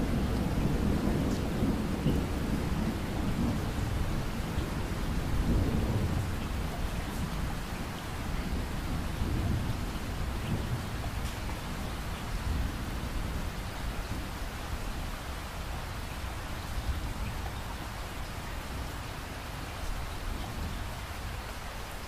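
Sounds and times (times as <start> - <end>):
rolling thunder: 0.0 - 14.4
steady rain: 0.0 - 22.0.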